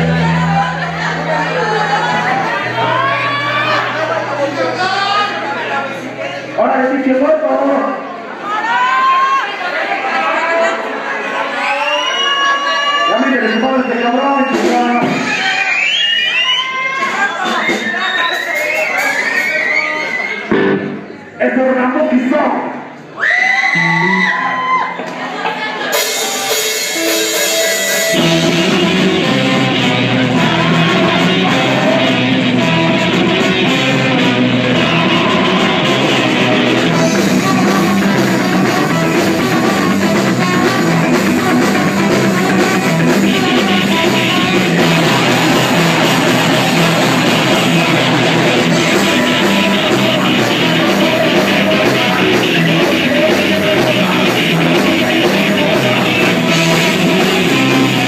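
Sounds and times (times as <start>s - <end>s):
drum kit: 0.0s - 5.4s, 14.4s - 19.7s, 20.5s - 21.1s, 25.8s - 58.0s
electric guitars: 0.0s - 6.6s, 20.4s - 21.4s, 23.7s - 58.0s
person singing into a microphone: 47.7s - 58.0s.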